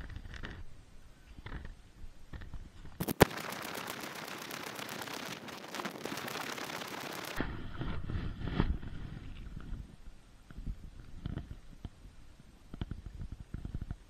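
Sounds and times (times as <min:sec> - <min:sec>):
kayak paddling rush: 0:03.0 - 0:07.4
plastic pouch rubbing and knocking: 0:03.0 - 0:07.4.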